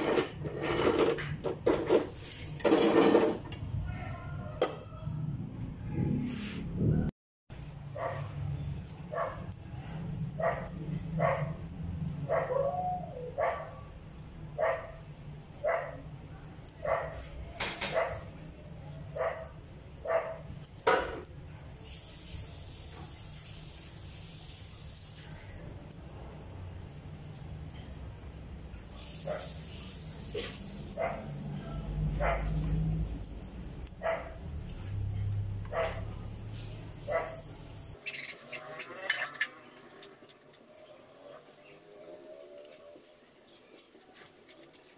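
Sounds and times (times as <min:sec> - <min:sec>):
dog barking: 0:03.8 - 0:04.6, 0:07.9 - 0:08.4, 0:09.1 - 0:09.6, 0:10.4 - 0:11.6, 0:12.2 - 0:13.9, 0:14.6 - 0:15.0, 0:15.6 - 0:16.1, 0:16.8 - 0:18.3, 0:19.1 - 0:20.5, 0:29.2 - 0:29.6, 0:31.0 - 0:31.3, 0:32.1 - 0:32.6, 0:34.0 - 0:34.4, 0:35.7 - 0:36.2, 0:37.0 - 0:37.5
food sizzling in oil: 0:21.3 - 0:25.9, 0:28.8 - 0:31.0, 0:32.7 - 0:38.5.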